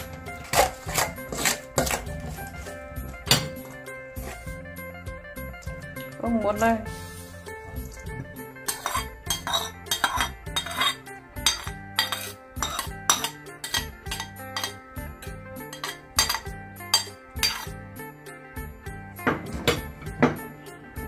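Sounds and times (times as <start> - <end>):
background music: 0.0 - 21.0
spoon knocking on metal bowl: 3.3 - 3.8, 8.7 - 14.8, 15.7 - 17.7.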